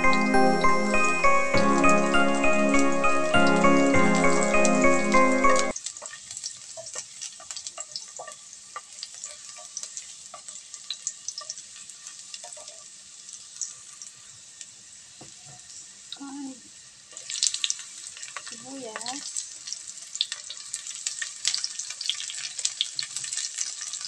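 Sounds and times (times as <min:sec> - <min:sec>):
music playing: 0:00.0 - 0:05.7
garlic sizzling in oil: 0:00.0 - 0:24.0
utensil stirring against pan: 0:06.0 - 0:12.9.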